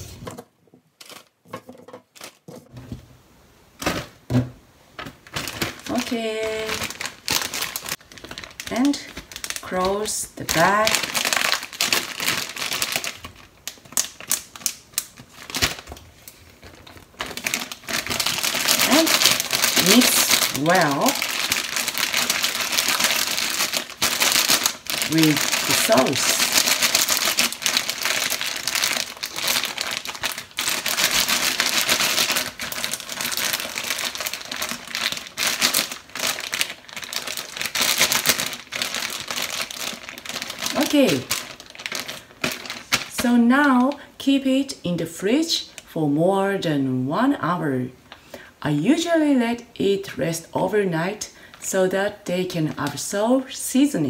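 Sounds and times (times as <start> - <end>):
plastic bag crinkling: 0.0 - 2.8, 4.9 - 44.1
plastic rustling: 0.0 - 3.1, 3.8 - 44.1.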